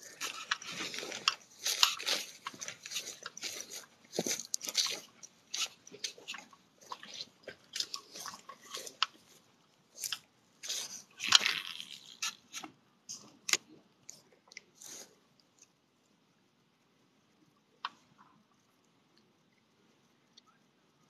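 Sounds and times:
footsteps crunching on grass: 0:00.0 - 0:09.0.

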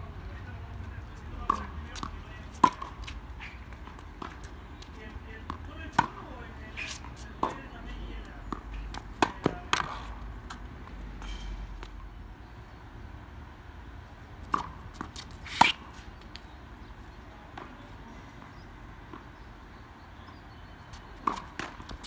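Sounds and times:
racket striking tennis ball: 0:01.4 - 0:04.5, 0:05.4 - 0:07.7, 0:08.5 - 0:10.6, 0:14.5 - 0:16.1, 0:21.2 - 0:22.0.

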